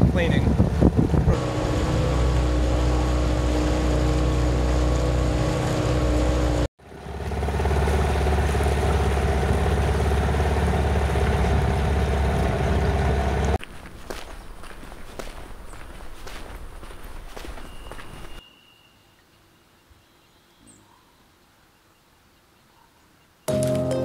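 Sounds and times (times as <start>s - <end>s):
outboard motor running: 0.0s - 13.6s.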